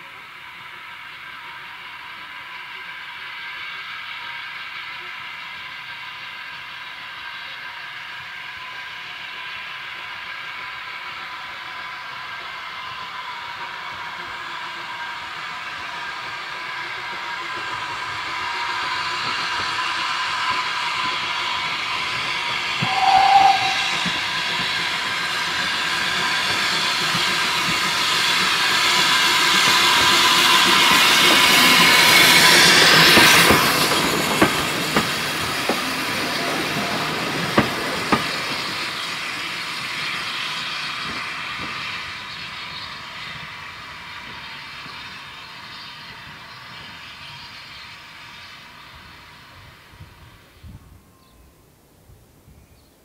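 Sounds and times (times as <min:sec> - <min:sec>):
steam locomotive hissing: 0:00.0 - 0:51.1
train whistle toot: 0:22.8 - 0:24.6.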